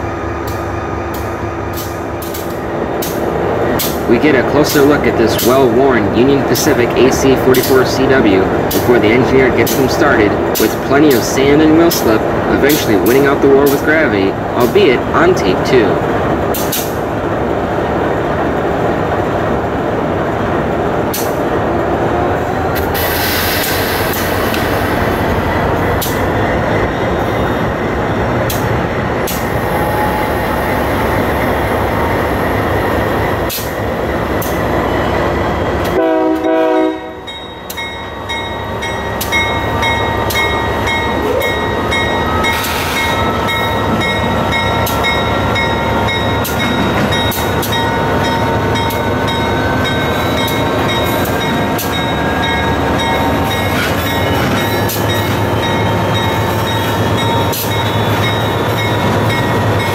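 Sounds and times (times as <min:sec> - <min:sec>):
diesel locomotive running hard: 0:00.0 - 0:59.9
locomotive horn blast: 0:35.9 - 0:37.3.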